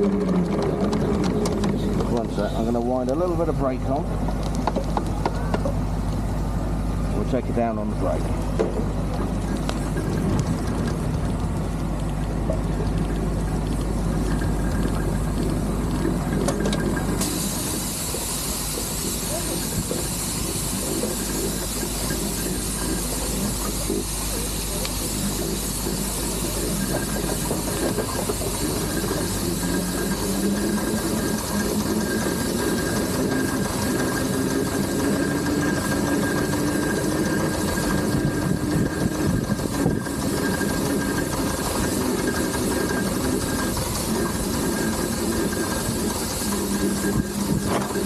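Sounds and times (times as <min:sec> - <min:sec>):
steam engine mechanical clatter: 0:00.0 - 0:06.2, 0:07.0 - 0:48.0
rising mechanical whine: 0:00.0 - 0:48.0
steam hissing: 0:14.0 - 0:48.0.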